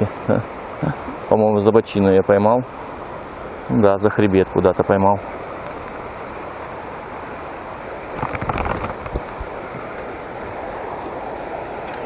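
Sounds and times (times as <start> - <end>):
irregular burst of noise: 2.3 - 12.0
shallow river rushing: 5.2 - 12.0.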